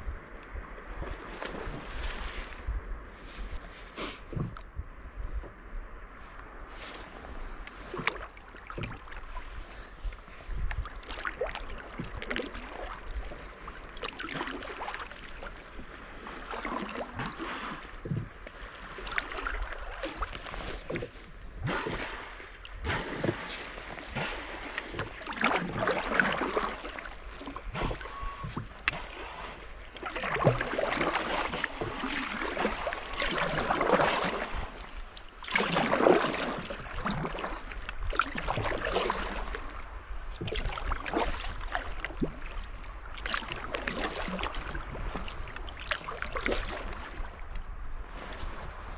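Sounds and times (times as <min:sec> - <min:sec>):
water running along hull: 0:00.0 - 0:48.9
paddle blades splashing: 0:00.6 - 0:48.9.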